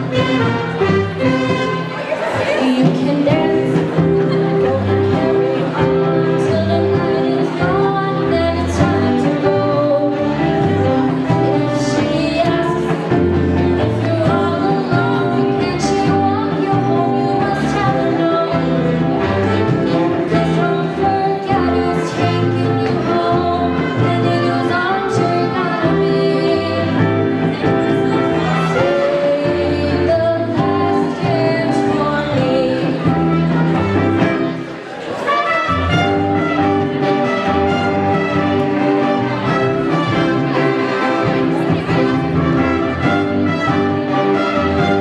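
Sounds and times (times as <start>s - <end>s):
jazz big band playing: 0.0s - 45.0s
woman singing: 2.4s - 33.6s.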